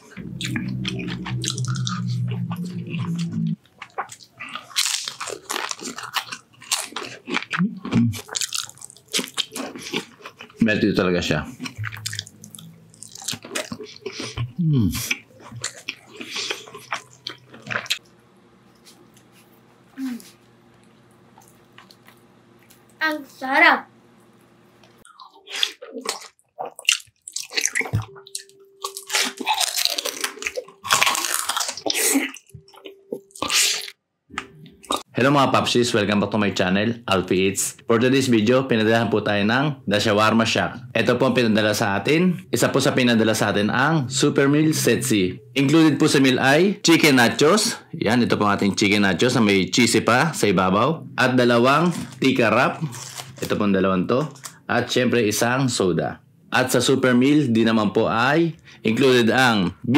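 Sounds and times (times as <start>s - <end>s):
wet mouth sounds: 0.0s - 6.4s, 11.5s - 18.1s
person chewing crunchy food: 0.0s - 10.7s, 11.4s - 19.5s, 20.2s - 22.9s, 25.0s - 35.1s, 51.9s - 53.5s.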